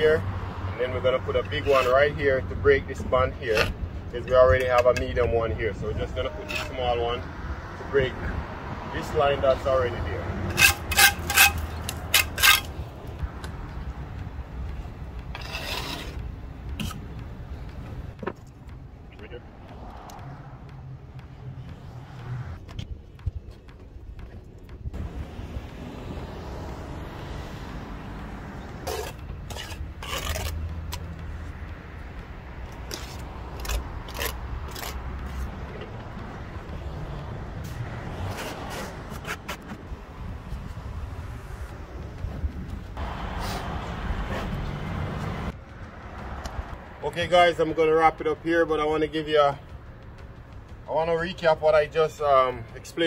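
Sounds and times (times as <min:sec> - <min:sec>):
mortar scraping against stone: 0:01.3 - 0:02.2, 0:06.4 - 0:06.9, 0:10.5 - 0:12.7, 0:15.3 - 0:16.2, 0:28.8 - 0:31.0, 0:32.9 - 0:35.5.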